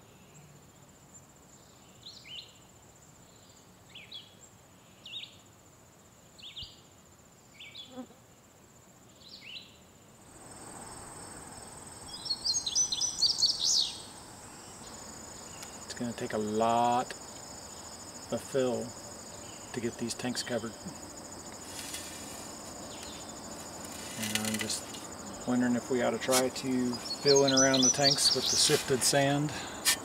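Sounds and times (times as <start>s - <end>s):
high insect whine: 0.0s - 30.0s
outdoor noise: 0.0s - 30.0s
rapid high chirping: 20.6s - 30.0s.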